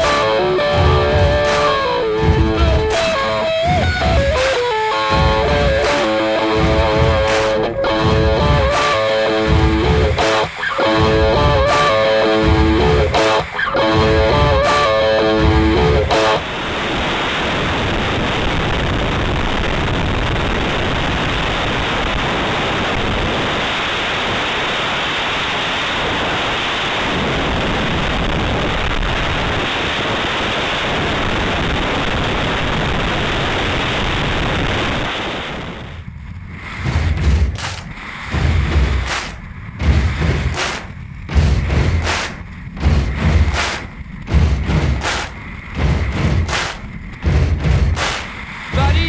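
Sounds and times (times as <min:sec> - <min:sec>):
wind rushing over microphone: 0:15.4 - 0:49.0.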